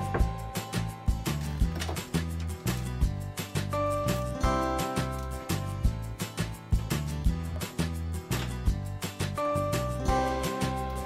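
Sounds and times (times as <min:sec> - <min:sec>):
music with bass and drums: 0:00.0 - 0:11.0.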